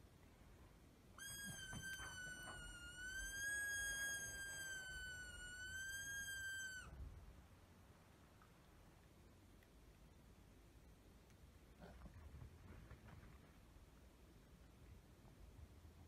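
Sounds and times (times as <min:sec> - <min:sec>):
dog whining: 0:01.2 - 0:06.9.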